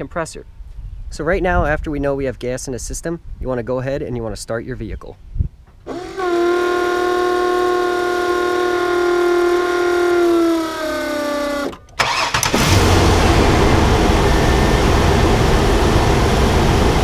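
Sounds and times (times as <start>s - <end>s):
electric oil pump whining: 5.9s - 17.0s
engine cranking and starting: 11.6s - 15.6s.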